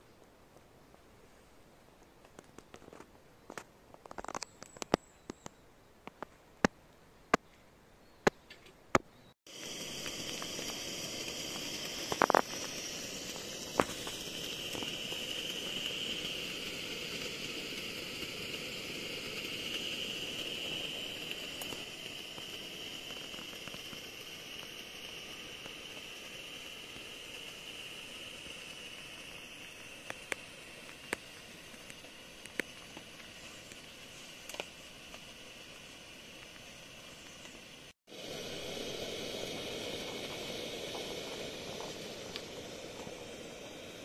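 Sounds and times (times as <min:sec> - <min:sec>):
high-pitched outdoor hiss: 0:00.0 - 0:44.0
click: 0:34.4 - 0:34.7, 0:41.7 - 0:43.2.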